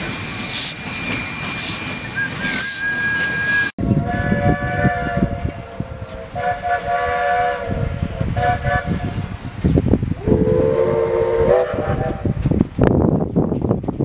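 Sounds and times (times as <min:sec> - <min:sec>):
steam locomotive whistle blasts: 0:01.5 - 0:09.3, 0:10.2 - 0:12.3.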